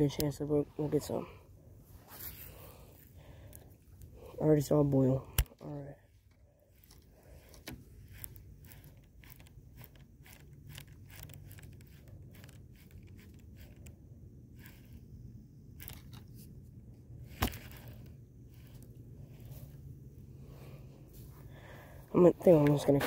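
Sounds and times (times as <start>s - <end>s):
handling noise crunching and clicking: 2.0s - 19.9s.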